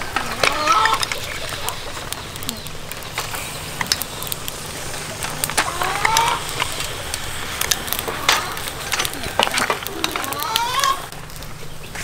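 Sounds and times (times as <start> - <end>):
sharp pops and crackles: 0.0 - 12.0
snails sizzling on a grill: 0.0 - 12.0.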